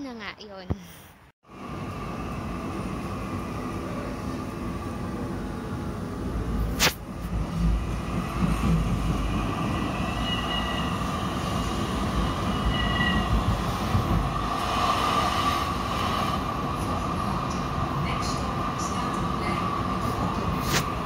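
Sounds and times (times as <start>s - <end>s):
tram wheels rumbling on rails: 1.5s - 21.0s
faint high squeals: 9.9s - 11.0s, 12.5s - 13.3s.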